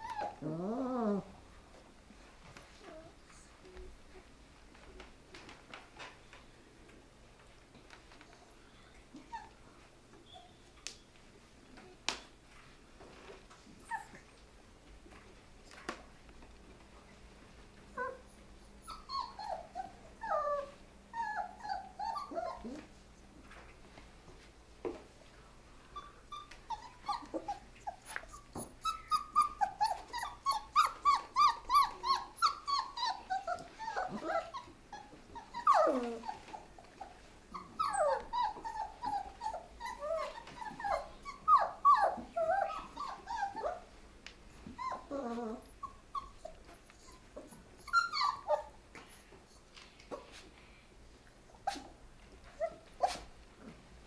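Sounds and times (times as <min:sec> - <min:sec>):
puppies whimpering and yipping: 0:00.0 - 0:01.3, 0:13.8 - 0:14.4, 0:17.9 - 0:22.9, 0:25.9 - 0:43.9, 0:44.6 - 0:48.8, 0:51.5 - 0:53.3.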